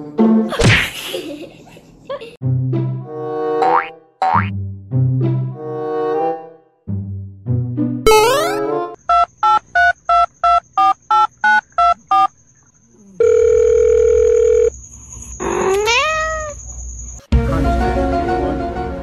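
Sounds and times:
rising pitched call tone: 0:08.1 - 0:08.7
steady phone tone: 0:13.2 - 0:14.7.

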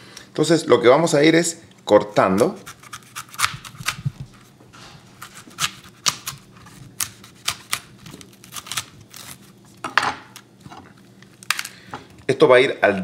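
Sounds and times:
knife cutting cauliflower: 0:02.1 - 0:04.5, 0:05.2 - 0:09.5
crisp snaps and crunches: 0:07.0 - 0:10.5, 0:11.1 - 0:12.3.

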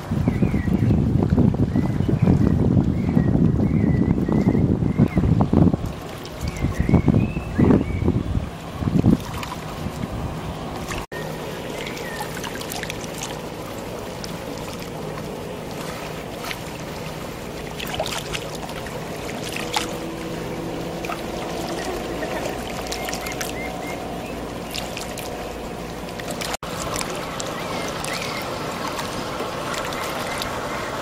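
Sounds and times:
wind noise: 0:00.0 - 0:11.0
motorboat engine running: 0:00.0 - 0:31.0
water noise: 0:00.0 - 0:31.0.

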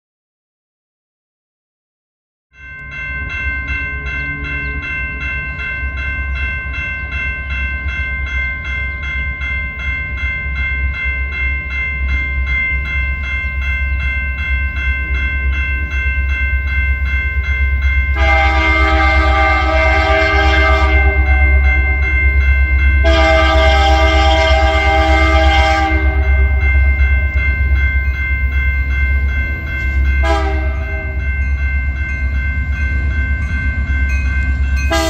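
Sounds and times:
railroad crossing bell ringing: 0:02.5 - 0:35.0
train horn chord: 0:18.1 - 0:22.2, 0:22.9 - 0:27.3, 0:30.2 - 0:31.4, 0:34.8 - 0:35.0.

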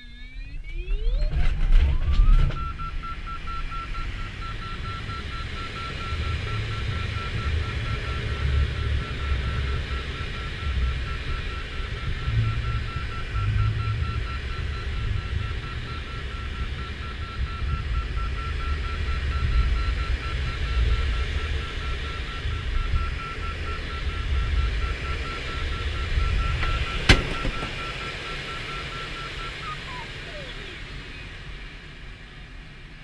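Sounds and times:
fast electronic beeping: 0:00.0 - 0:31.3
cockpit airflow noise: 0:00.0 - 0:33.0.

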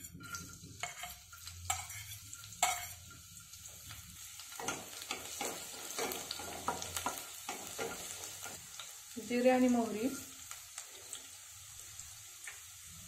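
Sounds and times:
spatula scraping pan: 0:00.0 - 0:03.2, 0:04.4 - 0:08.6
garlic sizzling in oil: 0:00.0 - 0:13.0.

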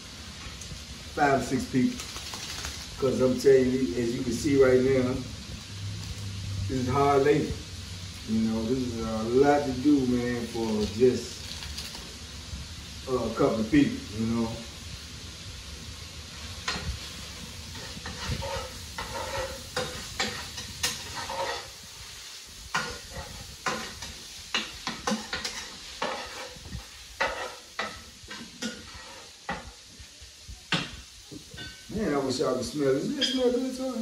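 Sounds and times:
food sizzling in a pan: 0:00.0 - 0:34.0
utensil scraping a pan: 0:16.6 - 0:30.0.

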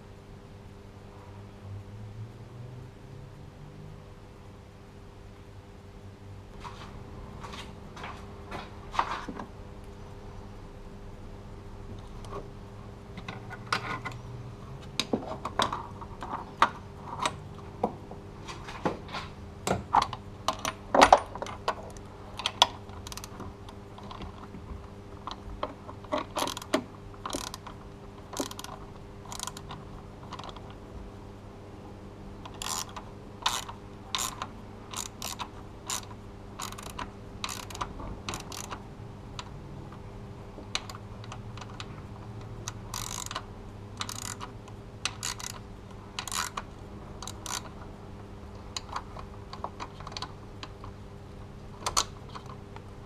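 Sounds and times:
socket ratchet clicking: 0:22.4 - 0:23.3, 0:26.3 - 0:27.8, 0:28.4 - 0:29.7, 0:32.5 - 0:38.8, 0:42.6 - 0:44.5, 0:45.1 - 0:45.6, 0:46.2 - 0:47.7.

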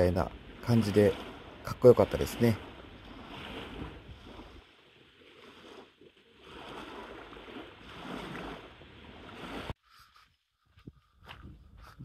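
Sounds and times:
waves washing onto gravel: 0:00.1 - 0:04.6.

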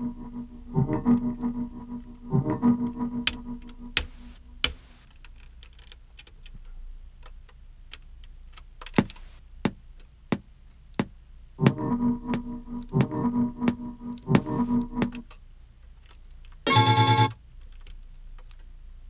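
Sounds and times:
sampled music loop: 0:00.0 - 0:04.8, 0:11.6 - 0:15.2.

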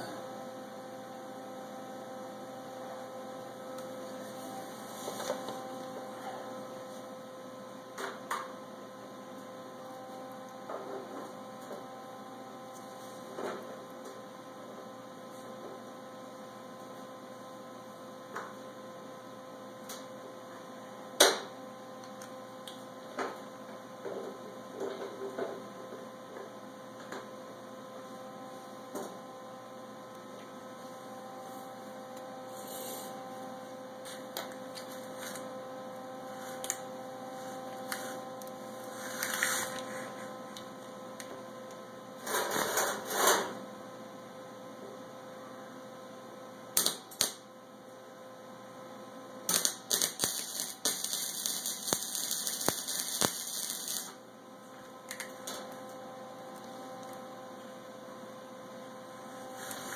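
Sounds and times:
steady electrical hum: 0:00.0 - 0:59.9
welding crackle: 0:46.8 - 0:47.4, 0:49.5 - 0:54.2, 0:59.6 - 0:59.9.

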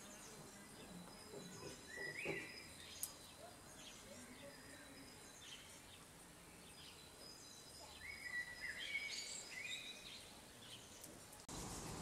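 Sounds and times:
soft outdoor hiss: 0:00.0 - 0:12.0
songbird whistling: 0:08.0 - 0:10.1
rough hiss: 0:11.5 - 0:12.0.

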